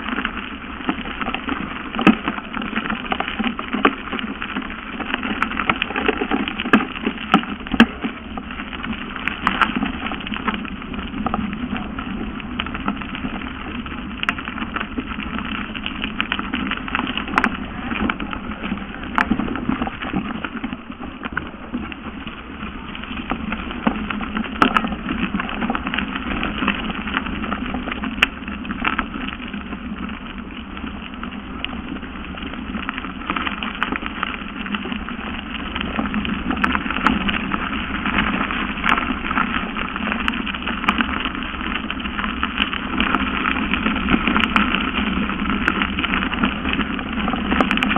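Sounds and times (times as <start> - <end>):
bike rattling over bumps: 0.0 - 47.9
bike tyres rushing on dirt trail: 0.0 - 47.9.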